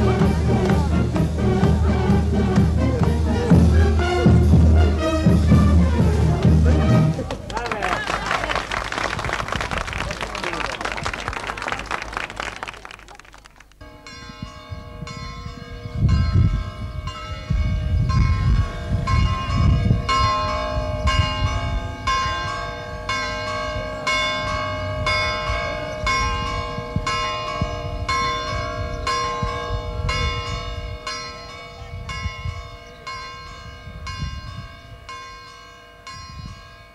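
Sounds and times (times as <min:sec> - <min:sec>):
church bells pealing: 0:13.8 - 0:36.9.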